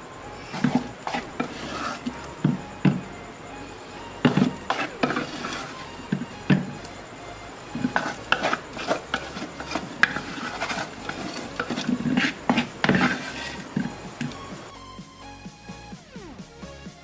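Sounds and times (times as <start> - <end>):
cloth rubbing against bowl: 0.4 - 3.0, 4.2 - 6.9, 7.7 - 14.7.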